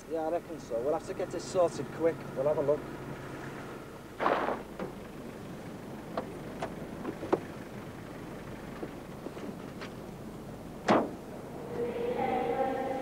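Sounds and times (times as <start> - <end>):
steady low hiss: 0.0 - 13.0
door thud: 10.8 - 11.2
van door clicks and knocks: 10.8 - 11.2.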